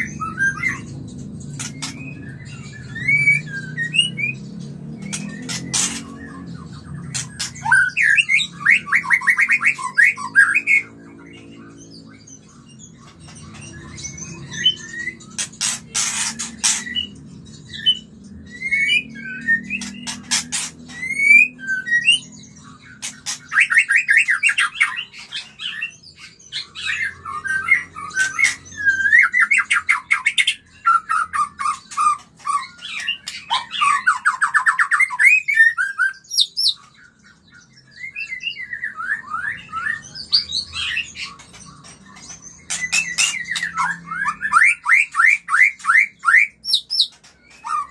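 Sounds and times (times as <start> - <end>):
bird rattling trills: 0.1 - 4.3, 5.0 - 6.4, 7.0 - 10.2, 12.9 - 17.2, 19.5 - 25.8, 40.3 - 47.9
bird whistled notes: 17.7 - 22.3.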